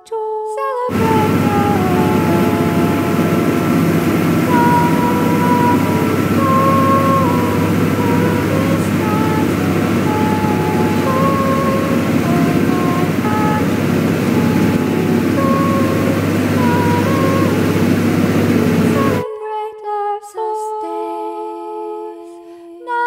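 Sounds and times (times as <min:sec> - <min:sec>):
boat engine running: 0:00.9 - 0:19.2
faint thin held melody: 0:00.9 - 0:19.2
rushing water from wake: 0:00.9 - 0:19.2.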